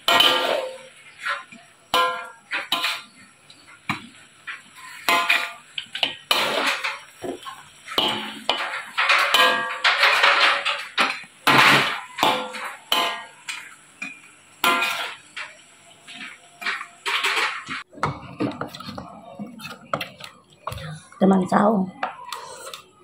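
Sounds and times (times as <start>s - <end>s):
metal spatula scraping a wok: 0.1s - 3.7s, 4.4s - 17.8s.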